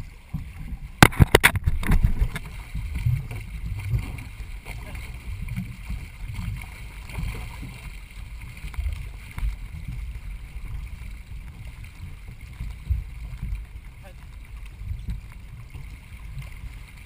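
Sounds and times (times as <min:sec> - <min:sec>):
low rumble of wind on microphone: 0:00.0 - 0:17.0
water rushing past hull: 0:00.0 - 0:17.0
thumps: 0:00.4 - 0:02.5.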